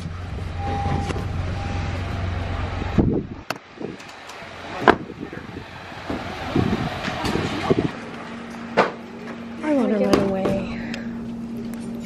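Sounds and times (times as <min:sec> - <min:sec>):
car engine hum: 0:00.0 - 0:12.0
car door shutting: 0:00.6 - 0:02.0, 0:04.8 - 0:05.1.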